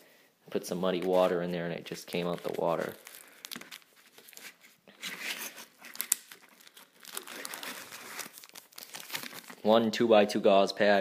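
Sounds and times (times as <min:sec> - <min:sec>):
paper packaging crinkling: 0:02.1 - 0:09.7.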